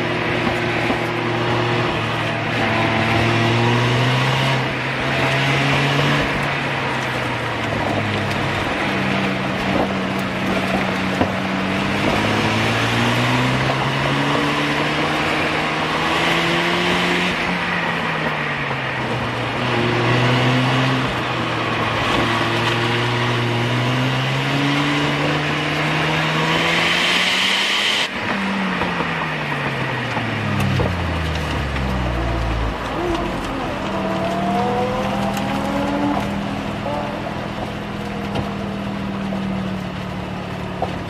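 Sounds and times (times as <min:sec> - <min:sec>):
rotary engine revving: 0:30.1 - 0:38.4
tyre noise: 0:30.2 - 0:38.8.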